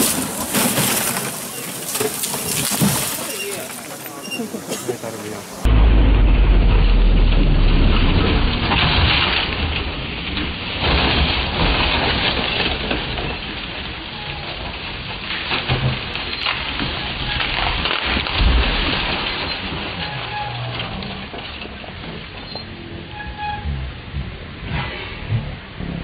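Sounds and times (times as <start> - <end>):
car crash rushing noise: 5.5 - 13.9.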